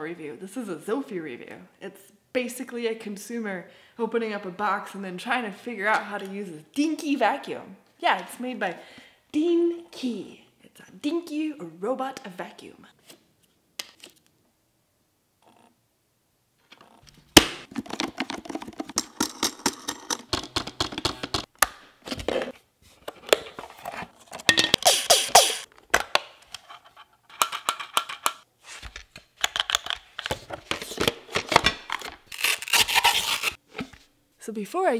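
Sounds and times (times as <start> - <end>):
plastic parts clicking and rattling: 17.0 - 25.0, 25.7 - 32.8.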